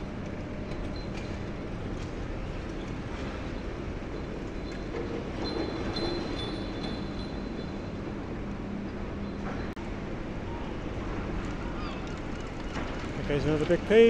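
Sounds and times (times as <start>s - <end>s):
high machinery squeal: 3.2s - 8.0s.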